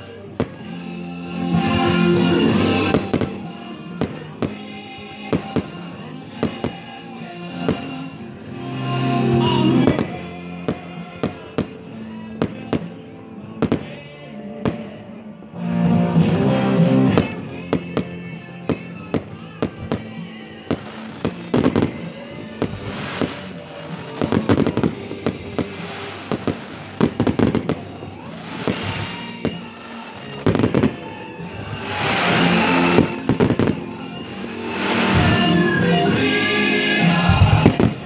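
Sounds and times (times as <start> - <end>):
music playing: 0.0 - 38.0
fireworks bangs: 1.6 - 7.0, 7.6 - 8.2, 9.6 - 13.0, 16.9 - 38.0.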